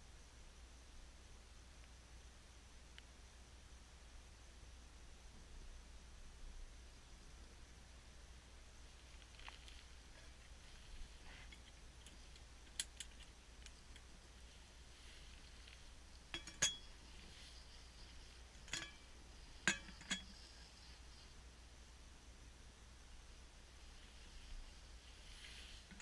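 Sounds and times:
metal cook pot lid clinking: 16.4 - 16.9.

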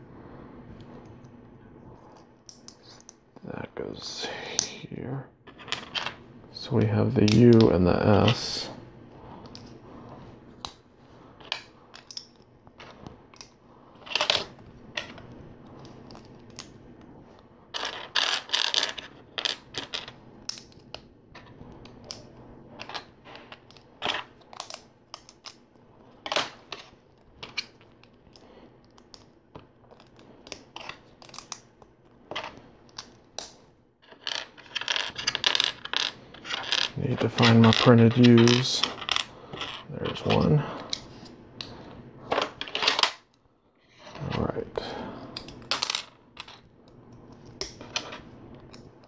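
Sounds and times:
plastic bricks clicking and rattling: 34.0 - 41.0.

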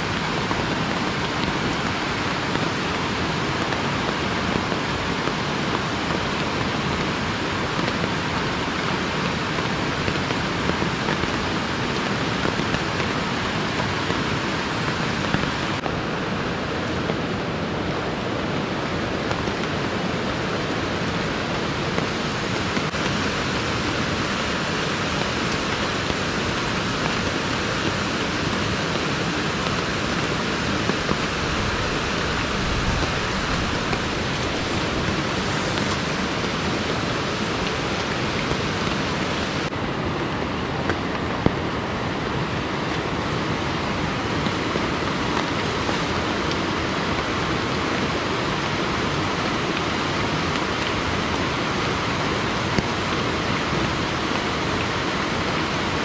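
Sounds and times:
fast-flowing river rushing: 0.0 - 56.0.

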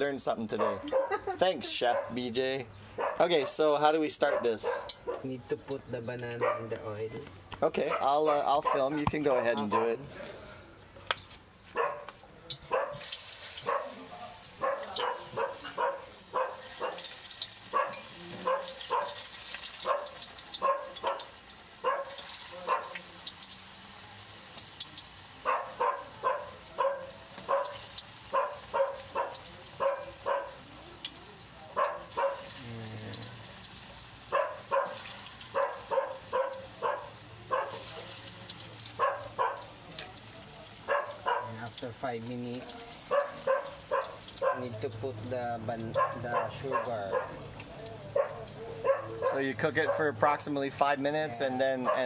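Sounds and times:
dog barking: 0.5 - 2.2, 3.0 - 3.6, 4.2 - 5.3, 6.4 - 6.8, 7.8 - 10.1, 11.8 - 17.1, 17.7 - 19.2, 19.8 - 23.0, 25.4 - 30.6, 31.7 - 32.6, 34.3 - 38.1, 39.0 - 39.8, 40.8 - 41.6, 43.0 - 44.8, 45.9 - 47.5, 48.1 - 50.1, 51.8 - 52.0
food sizzling in hot oil: 3.6 - 5.1, 12.3 - 51.5.

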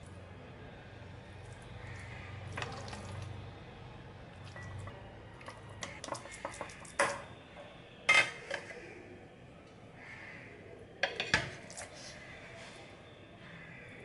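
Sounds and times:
spoon clinking on ceramic bowls: 8.1 - 8.6.

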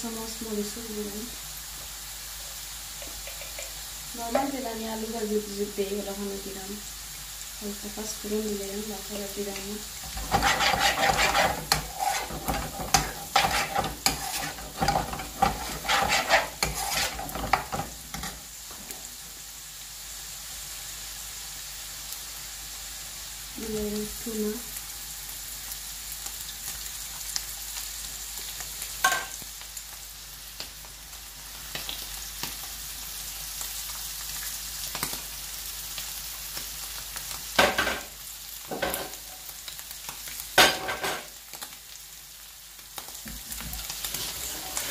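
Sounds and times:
onions sizzling in oil: 0.0 - 44.9
metal spoon scraping frying pan: 10.0 - 18.4, 44.1 - 44.9.

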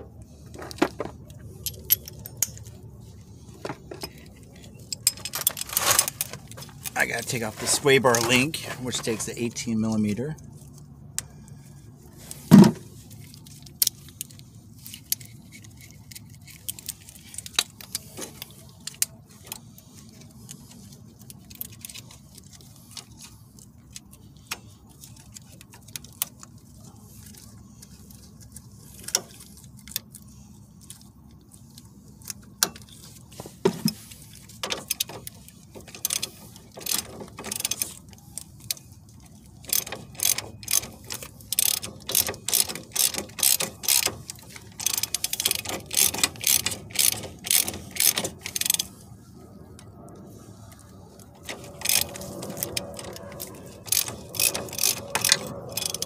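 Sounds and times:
low steady hum: 0.0 - 56.0
hand tools clicking and clanking: 0.3 - 9.8, 32.2 - 49.1, 51.2 - 56.0.

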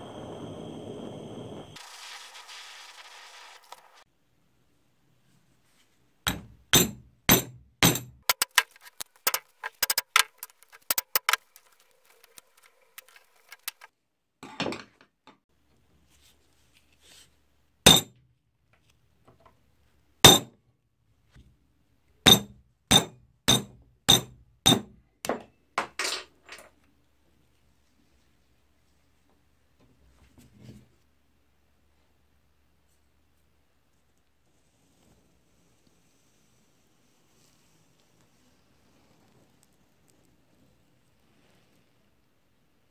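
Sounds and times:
hammer striking steel punch: 6.3 - 8.4, 17.9 - 18.2, 20.3 - 20.5, 22.3 - 25.4.

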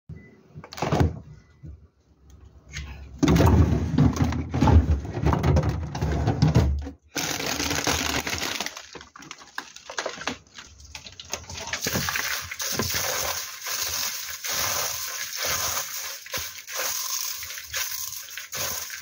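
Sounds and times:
plastic bags crinkling: 7.2 - 19.0.

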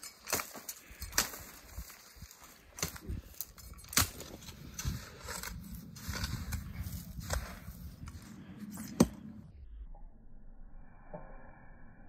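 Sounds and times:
sharp crunches and knocks: 0.0 - 9.3
low rumble: 4.4 - 12.0.

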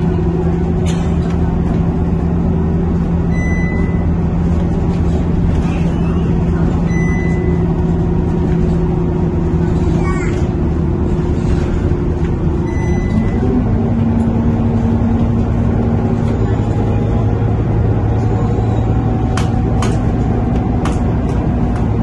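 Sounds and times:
bus engine hum: 0.0 - 22.0
loud radiator fan drone: 0.0 - 22.0.

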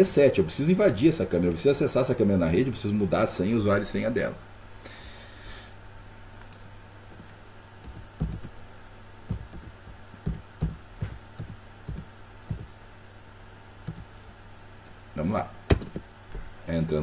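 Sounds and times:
low electrical hum: 0.0 - 17.0
keyboard and mouse clicks: 7.8 - 8.5, 9.3 - 12.7, 13.9 - 14.1.

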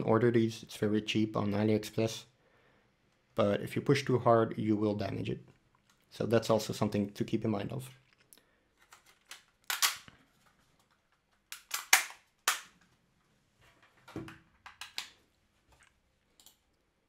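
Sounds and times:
plastic snaps and clicks: 8.1 - 10.2, 10.9 - 12.9, 14.2 - 15.2.

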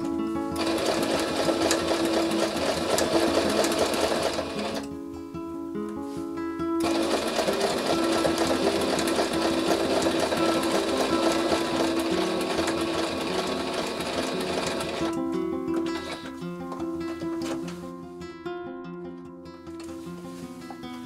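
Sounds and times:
background music: 0.0 - 21.0
sewing machine stitching: 0.6 - 4.9, 6.8 - 15.2, 15.8 - 16.3.

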